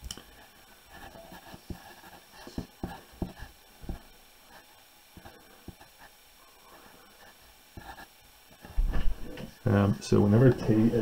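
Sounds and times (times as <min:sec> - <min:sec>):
pencil scratching on paper: 0:00.4 - 0:06.2, 0:06.8 - 0:08.8
pencil tapping on paper: 0:01.0 - 0:04.1, 0:05.2 - 0:05.9.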